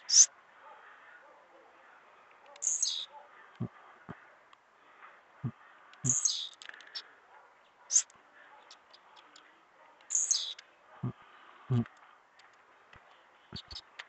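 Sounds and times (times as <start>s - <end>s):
bird singing buzzy song: 0.0s - 0.8s, 2.2s - 3.7s, 5.4s - 11.9s, 13.0s - 14.0s.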